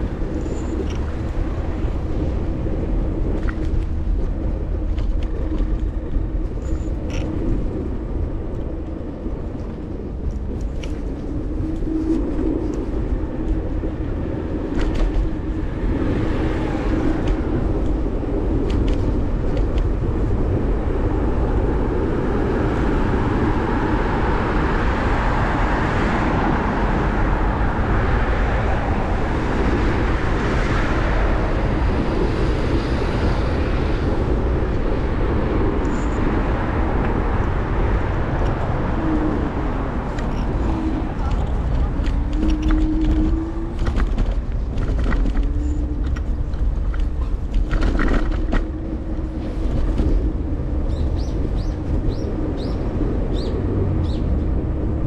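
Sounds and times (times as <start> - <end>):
wind and road rumble: 0.0 - 55.0
sharp clicks from bumps: 3.3 - 7.8, 14.7 - 15.4, 18.6 - 20.0, 41.2 - 48.8.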